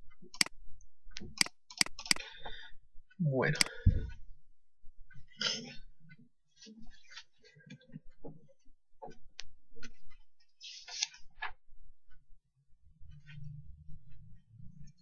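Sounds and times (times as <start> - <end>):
light clicks and ticks: 0.0 - 2.7, 3.5 - 4.2.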